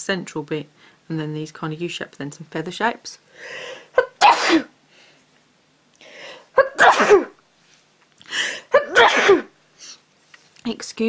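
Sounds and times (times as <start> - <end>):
sharp in-breath: 3.3 - 3.9, 6.0 - 6.5, 8.3 - 8.7
person sneezing: 3.9 - 4.7, 6.5 - 7.4, 8.4 - 10.0.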